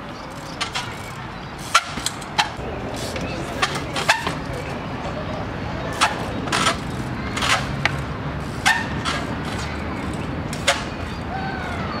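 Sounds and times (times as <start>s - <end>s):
bicycle wheels knocking on wood: 6.0s - 11.2s.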